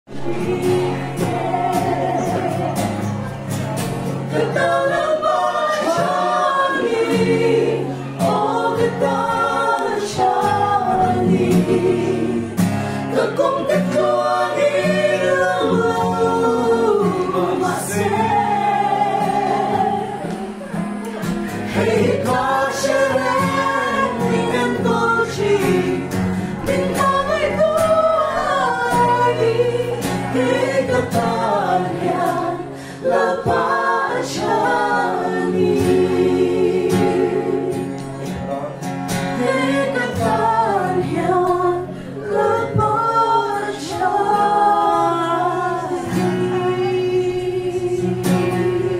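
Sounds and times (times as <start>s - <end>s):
acoustic guitar: 0.1s - 48.9s
group singing gospel song: 0.1s - 48.9s.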